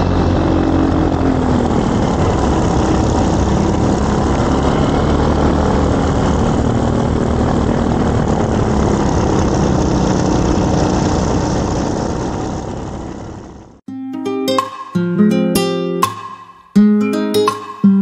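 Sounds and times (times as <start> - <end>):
wind rush: 0.0 - 13.7
propeller humming: 0.0 - 13.8.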